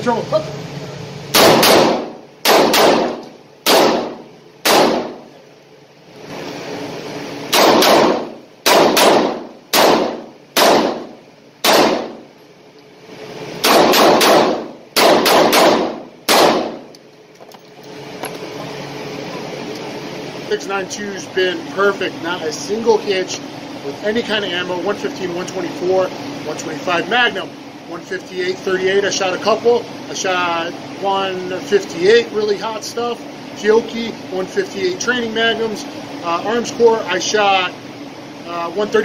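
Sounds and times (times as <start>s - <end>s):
ventilation hum: 0.0s - 39.0s
revolver shots echoing: 1.3s - 5.3s, 7.5s - 12.3s, 13.6s - 16.9s.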